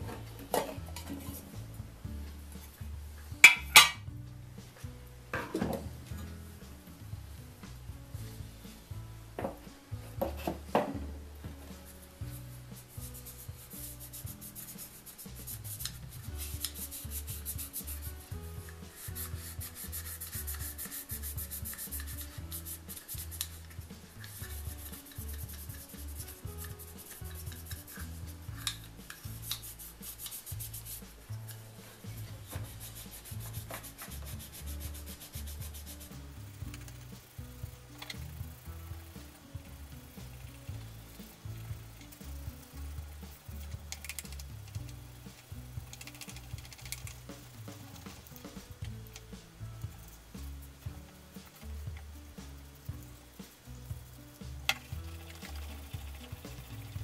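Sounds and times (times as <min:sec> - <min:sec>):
cloth rubbing wax on housing: 0:11.6 - 0:37.2.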